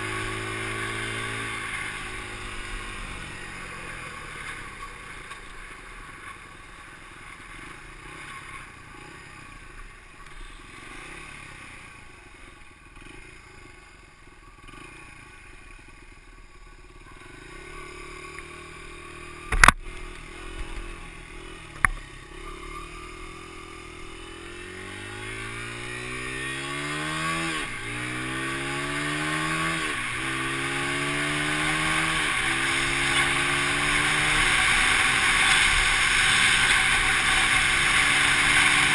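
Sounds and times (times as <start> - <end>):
dirt bike engine accelerating: 0.0 - 9.7, 10.4 - 38.9
sharp clicks: 19.5 - 20.2.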